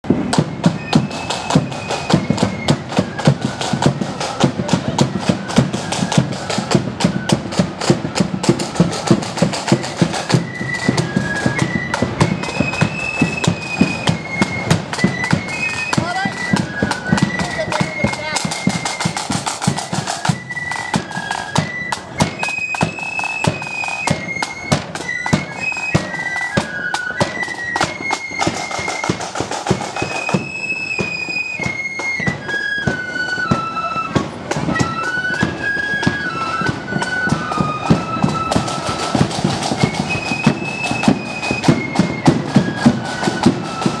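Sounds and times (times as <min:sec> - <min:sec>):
side drums and bass drum: 0:00.0 - 0:20.4
flutes playing high melody: 0:00.0 - 0:44.0.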